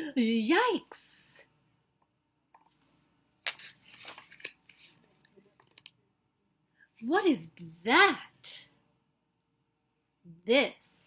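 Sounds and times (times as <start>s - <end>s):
book page turning: 3.4s - 5.9s.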